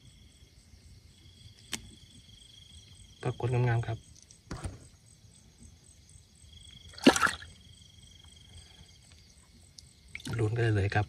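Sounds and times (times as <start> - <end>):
splash in water: 6.9 - 7.6.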